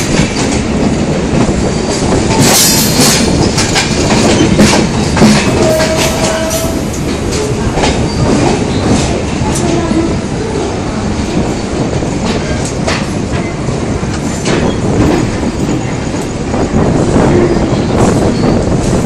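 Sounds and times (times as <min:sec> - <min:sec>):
wheels clicking over rail joints: 0:00.0 - 0:10.1
train wheel rumble on rails: 0:00.0 - 0:19.0.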